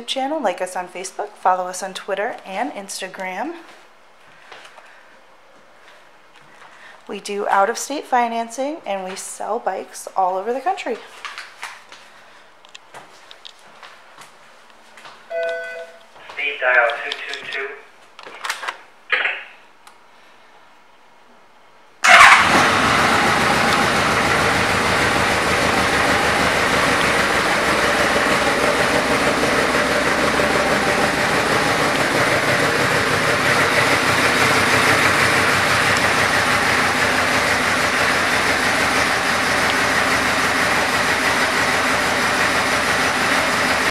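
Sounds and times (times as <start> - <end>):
motorcycle engine starting and idling: 22.0 - 43.9.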